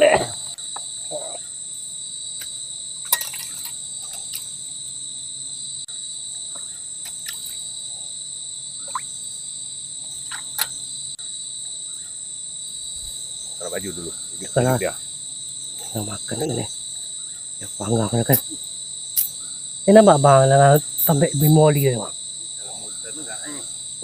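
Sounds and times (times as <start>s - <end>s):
crickets trilling: 0.0s - 24.0s.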